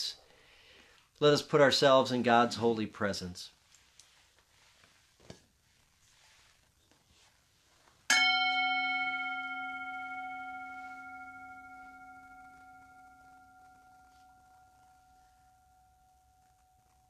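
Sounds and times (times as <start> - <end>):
metal singing bowl ringing: 8.1 - 17.0.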